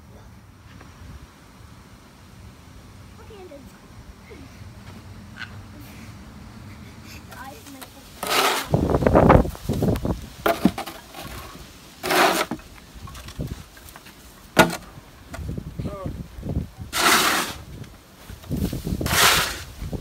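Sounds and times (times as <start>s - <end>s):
metal shovel scraping snow: 7.4s - 8.9s, 10.5s - 12.7s, 16.9s - 17.7s, 18.6s - 19.8s.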